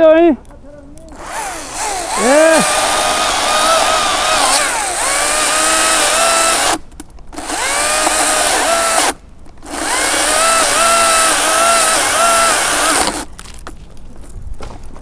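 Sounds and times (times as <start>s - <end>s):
electric chainsaw cutting wood: 1.1s - 6.8s, 7.4s - 13.3s.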